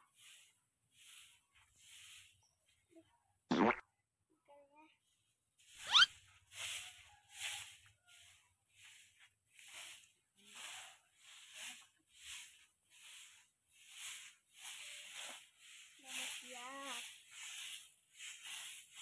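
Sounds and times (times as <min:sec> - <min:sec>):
broom sweeping dirt: 0:00.0 - 0:02.9, 0:05.1 - 0:19.0.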